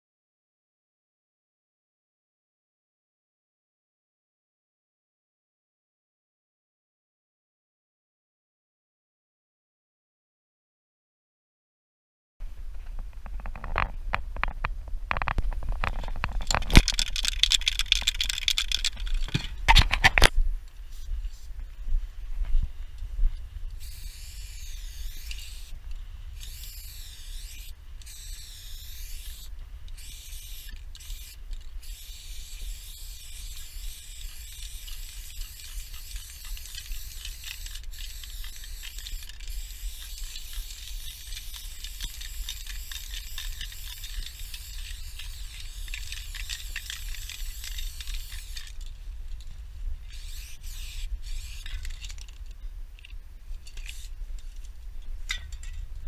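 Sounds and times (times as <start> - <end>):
spray-paint can hissing: 16.6 - 19.2, 23.8 - 25.8, 26.4 - 48.8, 50.1 - 51.7.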